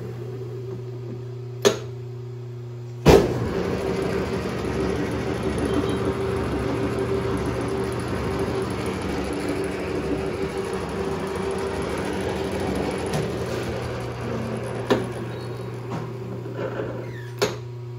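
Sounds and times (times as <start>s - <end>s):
metal lathe humming: 3.4s - 17.2s.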